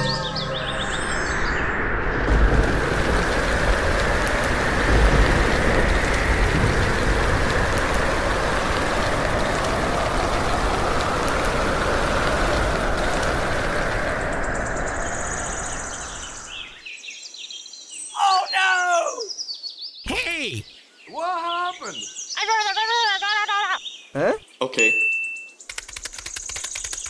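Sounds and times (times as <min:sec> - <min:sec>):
heavy rain pouring: 0:02.1 - 0:16.6, 0:20.1 - 0:20.6
low thunder rumble: 0:02.1 - 0:16.6.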